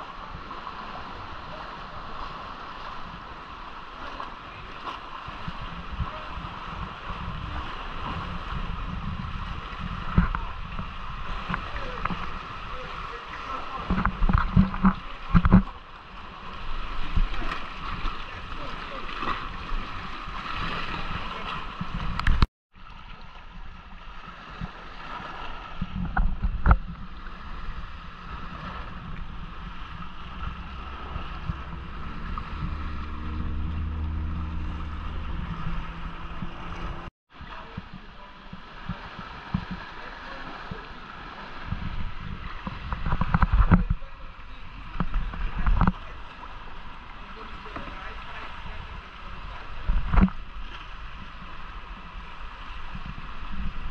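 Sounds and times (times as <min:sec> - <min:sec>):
sea water sloshing and splashing: 0:00.0 - 0:53.9
wind buffeting microphone: 0:04.5 - 0:15.8, 0:24.4 - 0:53.9
low droning hum: 0:25.8 - 0:39.5.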